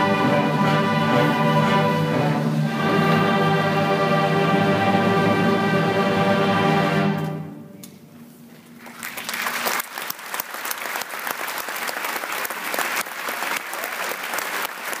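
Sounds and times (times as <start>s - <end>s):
orchestra holding a chord: 0.0s - 7.8s
audience applause: 8.8s - 15.0s.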